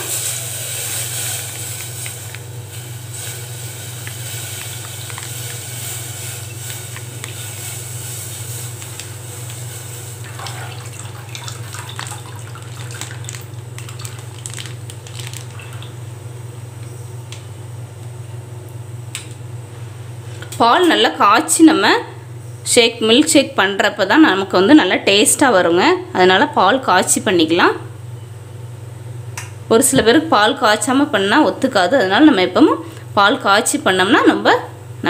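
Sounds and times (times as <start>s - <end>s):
plastic packet crinkling: 4.6s - 5.6s, 10.7s - 16.0s.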